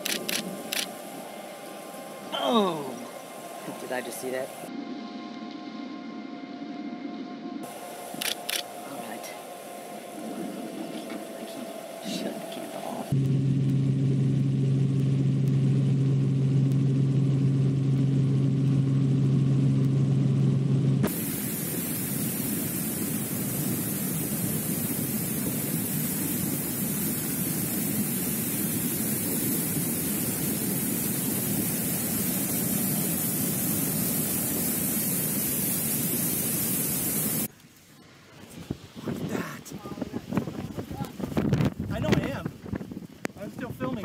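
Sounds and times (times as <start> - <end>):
flood torrent roaring: 0.0 - 4.7, 7.6 - 13.2
low hum: 0.0 - 43.3.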